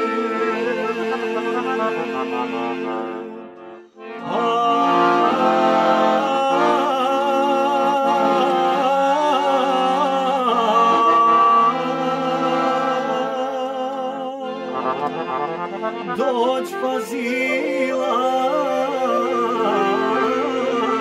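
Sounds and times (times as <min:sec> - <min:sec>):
piano accordion: 0:00.0 - 0:21.0
man singing folk song: 0:04.2 - 0:14.5, 0:16.0 - 0:21.0.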